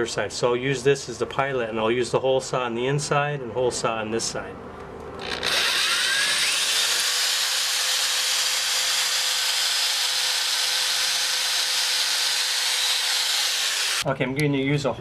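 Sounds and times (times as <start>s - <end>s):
electric drill boring into wall: 5.2s - 14.0s.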